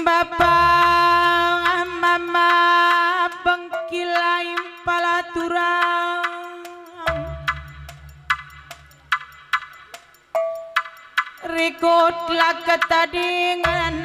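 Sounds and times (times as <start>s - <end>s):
sharp percussion clicks: 0.8s - 14.0s
pulsing low drum beat: 5.8s - 14.0s
held melody with pitch bends: 6.4s - 14.0s.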